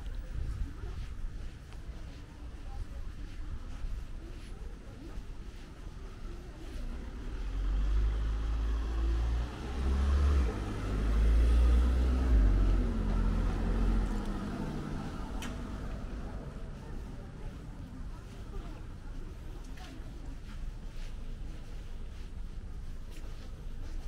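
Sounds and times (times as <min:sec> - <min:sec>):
car driving past: 0:07.3 - 0:16.6.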